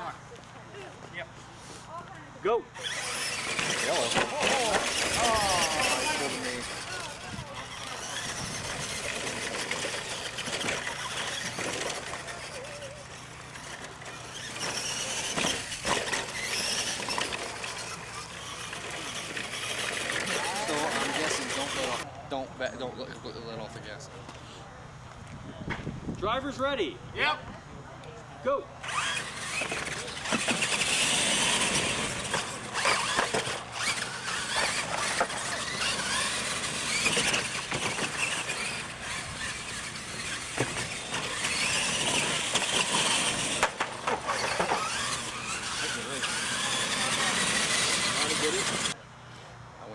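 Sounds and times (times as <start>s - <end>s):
toy truck motor whining: 2.7s - 22.1s, 28.8s - 49.0s.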